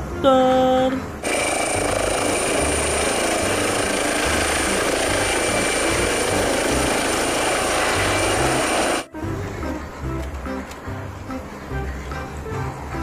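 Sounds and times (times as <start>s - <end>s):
helicopter rotor beat: 1.2s - 9.1s
helicopter turbine whine: 1.2s - 9.1s.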